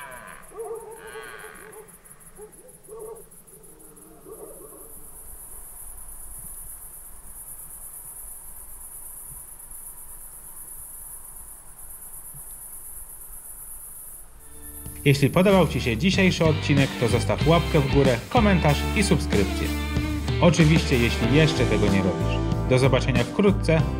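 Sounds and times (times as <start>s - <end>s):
deer roaring: 0.0s - 4.9s
bush crickets chirring: 0.0s - 17.9s.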